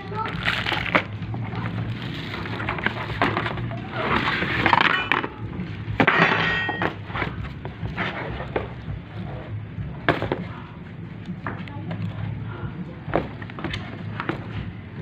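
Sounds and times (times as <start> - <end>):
cardboard rustling and scraping: 0.1 - 5.4, 6.8 - 10.7.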